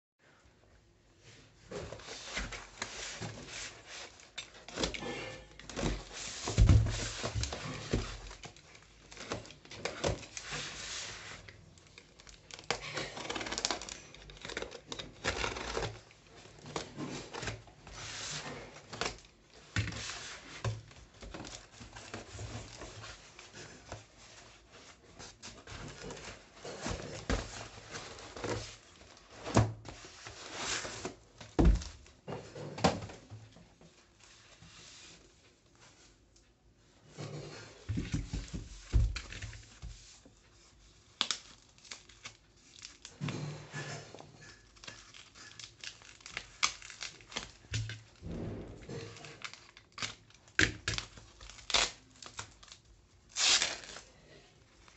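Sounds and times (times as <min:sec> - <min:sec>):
packing tape tearing: 0:12.0 - 0:16.1, 0:44.8 - 0:48.0, 0:49.1 - 0:54.1
paper crinkling: 0:44.4 - 0:54.1.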